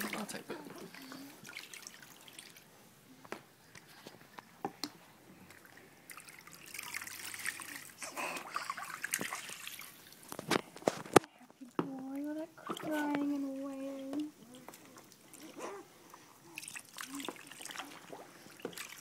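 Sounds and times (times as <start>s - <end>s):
water drips and splashes: 0.0s - 2.7s, 4.8s - 10.4s, 11.6s - 19.0s
water trickling and sloshing: 0.0s - 2.8s, 3.7s - 19.0s.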